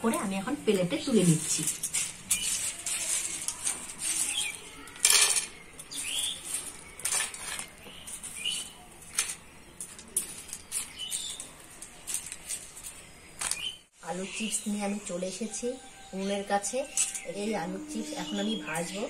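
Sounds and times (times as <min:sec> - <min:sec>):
dried potato slices rustling: 0:00.0 - 0:13.9.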